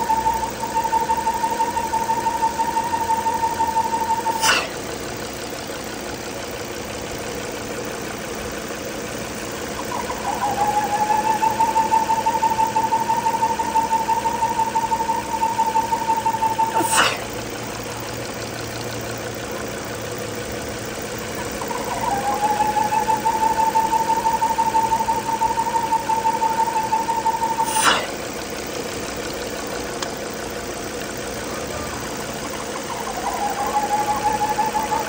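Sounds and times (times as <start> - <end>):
steady vacuum whistle: 0.0 - 4.9, 9.7 - 17.6, 21.4 - 28.4, 31.4 - 35.0
car engine idling: 0.0 - 35.0
engine knock: 0.0 - 35.0.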